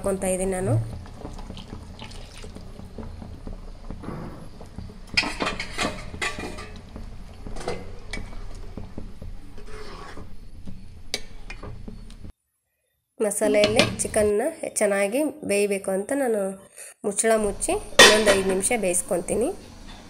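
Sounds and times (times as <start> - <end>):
spoon clinking and scraping pan: 5.1 - 6.8, 18.0 - 18.8.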